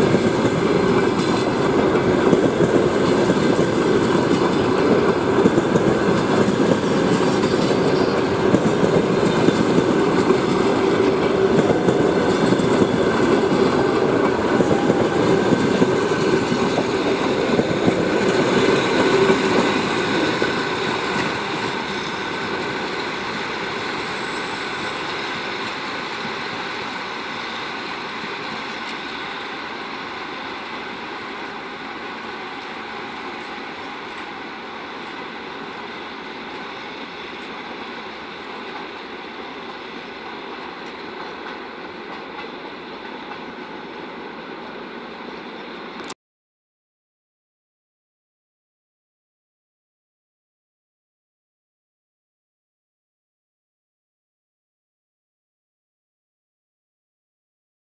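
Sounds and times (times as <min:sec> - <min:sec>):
train wheels clattering on rails: 0:00.0 - 0:30.5, 0:31.2 - 0:44.1.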